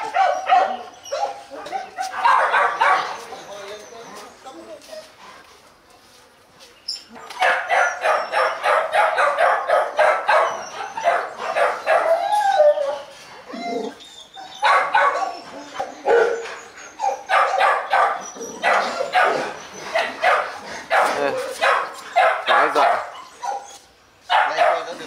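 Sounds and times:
dogs barking: 0:00.0 - 0:03.3, 0:07.2 - 0:13.0, 0:14.5 - 0:25.0.

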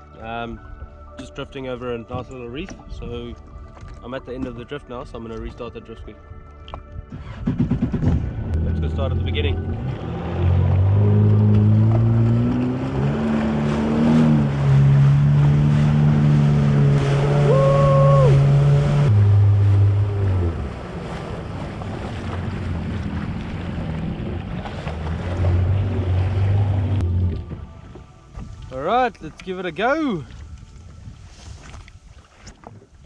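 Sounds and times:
jet ski engine accelerating: 0:07.2 - 0:27.9
water noise: 0:08.2 - 0:33.0.

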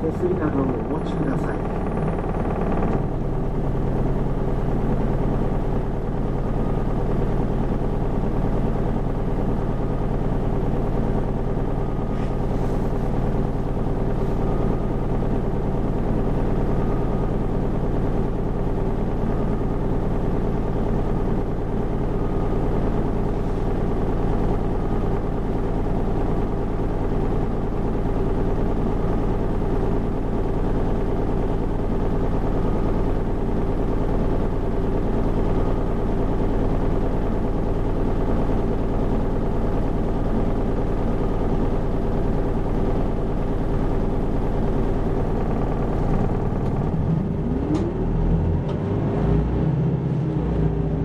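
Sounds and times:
bus engine droning: 0:00.0 - 0:07.3, 0:10.8 - 0:27.1, 0:44.9 - 0:51.0.

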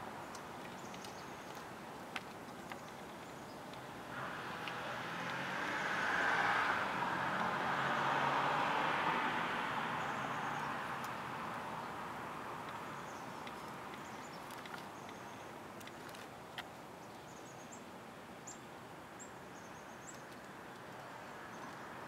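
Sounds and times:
car driving past: 0:04.1 - 0:11.4.

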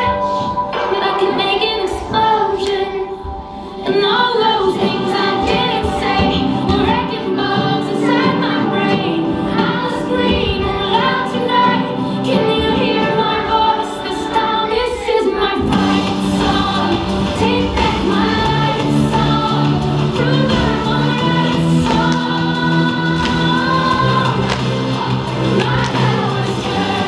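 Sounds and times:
children singing: 0:00.0 - 0:27.0
drums keeping a steady beat: 0:15.6 - 0:27.0.

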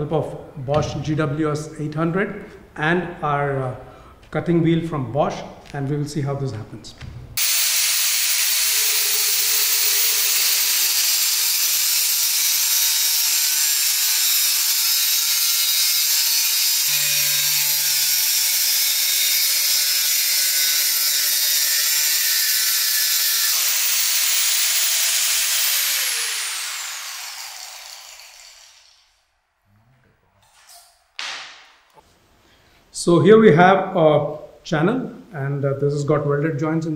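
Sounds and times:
motor winding down whine: 0:07.4 - 0:29.0
angle grinder cutting steel: 0:07.4 - 0:29.1.

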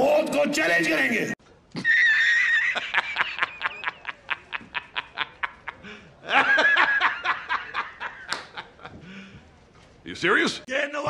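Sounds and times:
man laughing heartily: 0:01.8 - 0:09.1.

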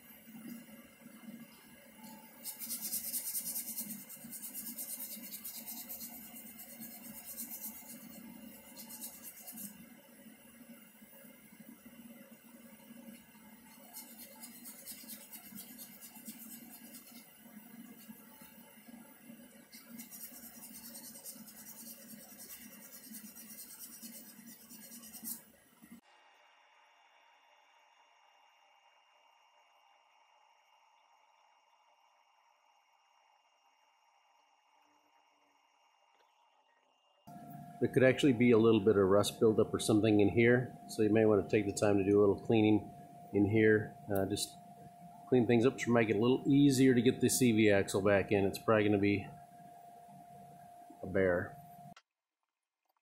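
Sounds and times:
rhythmic scraping and rubbing: 0:02.0 - 0:09.8, 0:13.6 - 0:18.4, 0:19.6 - 0:25.4.

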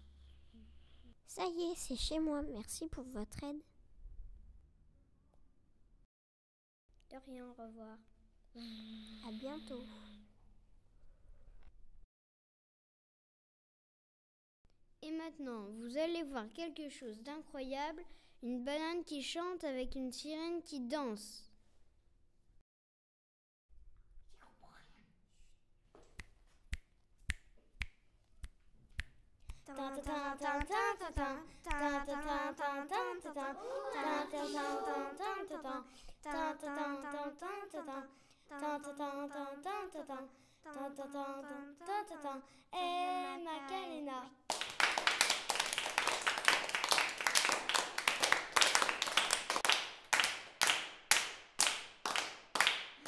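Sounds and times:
child singing: 0:29.6 - 0:44.4
people clapping: 0:33.4 - 0:35.4, 0:44.5 - 0:53.0.

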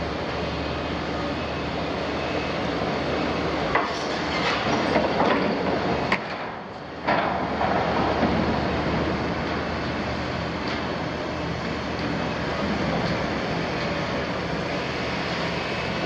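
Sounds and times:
metal clanks and scraping: 0:03.9 - 0:05.6.

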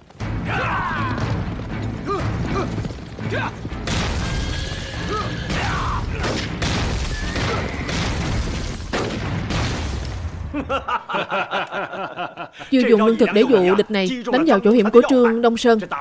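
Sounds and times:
horse hooves: 0:00.0 - 0:05.6
explosions: 0:00.0 - 0:10.8
film music: 0:00.0 - 0:16.0.

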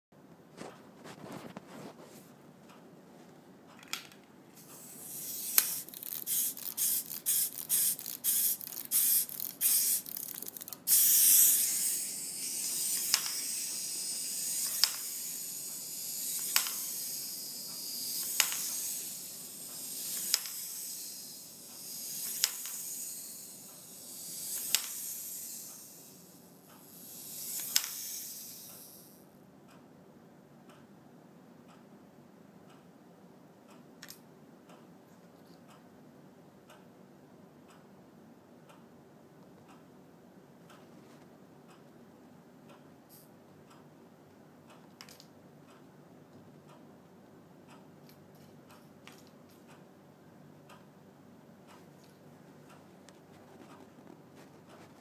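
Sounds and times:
clockwork clicks: 0:04.6 - 0:29.2
wind-up toy clockwork whirring: 0:04.6 - 0:29.2.

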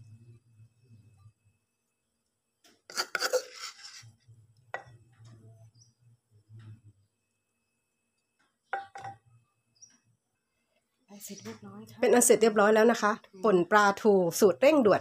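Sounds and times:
spoon scraping and knocking in mortar: 0:02.7 - 0:05.4.

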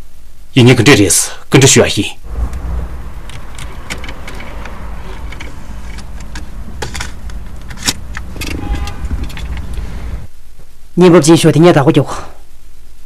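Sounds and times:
car engine rumble inside cabin: 0:02.3 - 0:10.3
cassette tape ejecting: 0:03.2 - 0:09.9.

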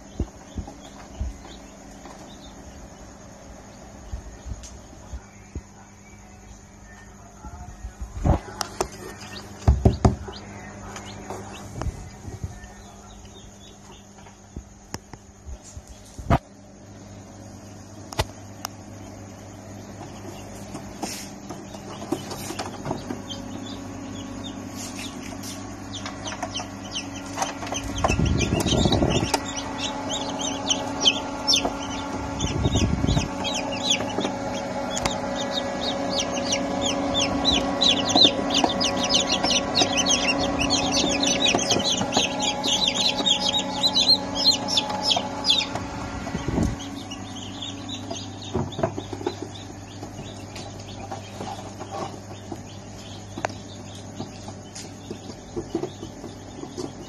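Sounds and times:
chicks peeping: 0:00.0 - 0:57.0
steady low hum: 0:00.0 - 0:57.0
dull low thumps: 0:26.0 - 0:51.4.

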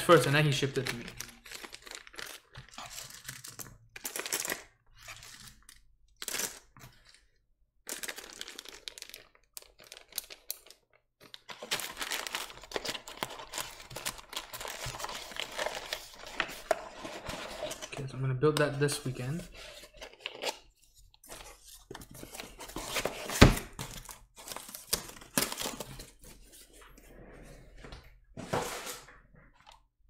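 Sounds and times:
plastic bag crinkling: 0:00.1 - 0:06.6, 0:07.9 - 0:17.6.

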